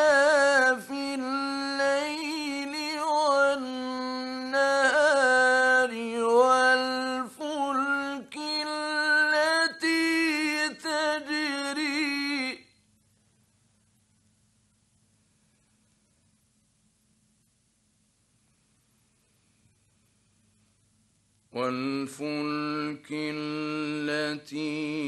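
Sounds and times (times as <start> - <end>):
man chanting melodically: 0.0 - 12.7, 21.6 - 25.0.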